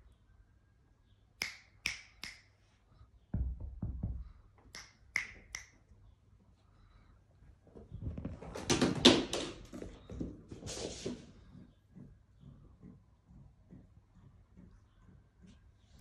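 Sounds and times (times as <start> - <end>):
finger snaps: 1.4 - 2.6, 4.7 - 5.8
low dull thuds: 3.3 - 4.5.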